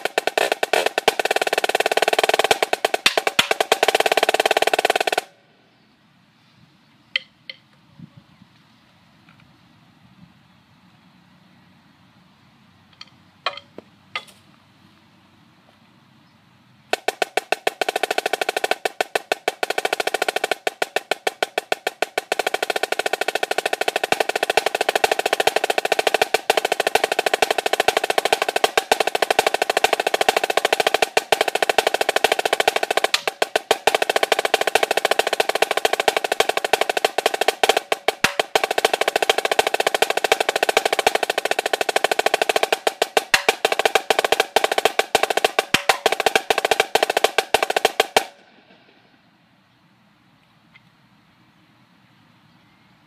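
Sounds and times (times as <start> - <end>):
snare drum rolls: 0.0 - 5.3, 16.9 - 48.8.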